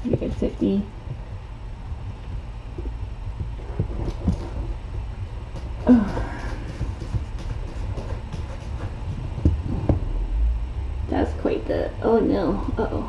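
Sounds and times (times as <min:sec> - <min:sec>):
low background hum: 0:00.0 - 0:13.0
faint taps and rustles: 0:02.1 - 0:04.8.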